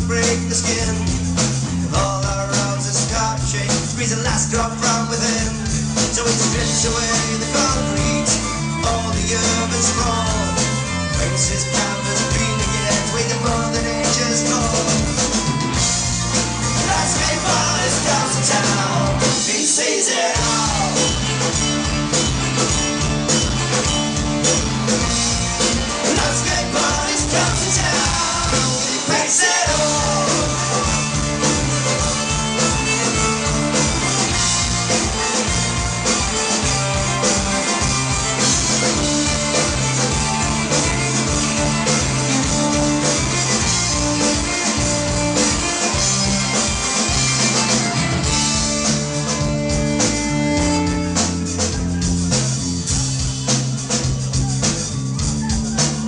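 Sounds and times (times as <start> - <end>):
band playing live: 0.0 - 56.0
person singing: 1.9 - 15.1, 16.8 - 21.3, 25.9 - 33.4.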